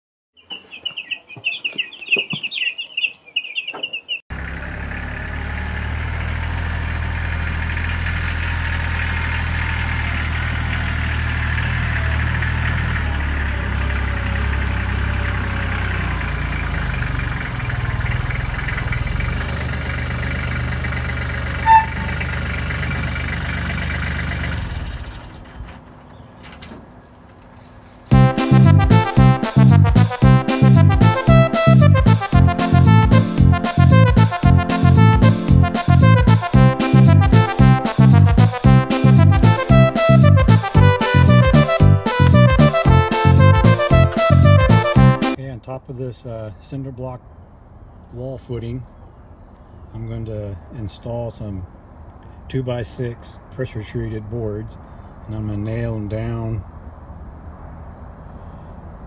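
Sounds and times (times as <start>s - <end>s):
birds calling: 0.4s - 6.9s, 10.2s - 29.4s, 46.3s - 50.7s
tractor engine running: 3.7s - 45.4s.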